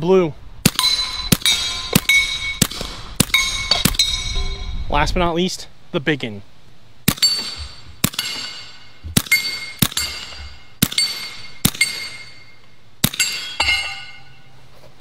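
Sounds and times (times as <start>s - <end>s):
air pistol shots: 0.6s - 4.2s, 7.1s - 12.4s, 13.0s - 13.6s
steel target ringing: 0.7s - 4.8s, 7.1s - 14.6s.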